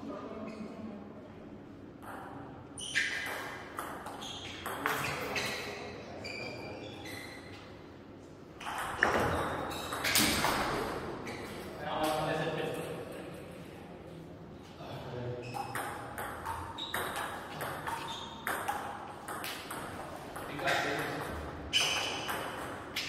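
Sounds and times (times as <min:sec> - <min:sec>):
ball bouncing on table: 0:02.0 - 0:02.5, 0:03.1 - 0:05.5, 0:08.6 - 0:10.8, 0:15.5 - 0:23.0.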